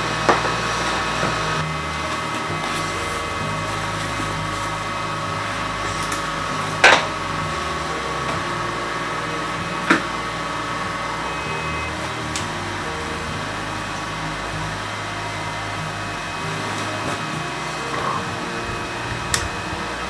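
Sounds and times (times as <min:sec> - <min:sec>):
steady whirring hum: 0:00.0 - 0:20.0.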